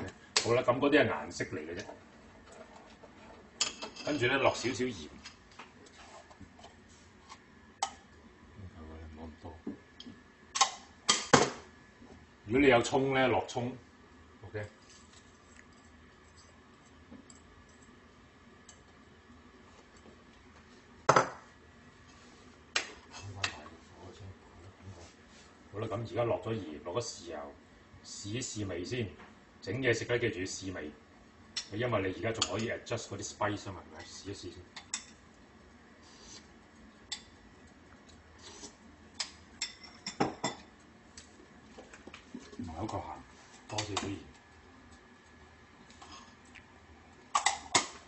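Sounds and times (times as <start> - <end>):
dishes clinking: 39.6 - 40.7.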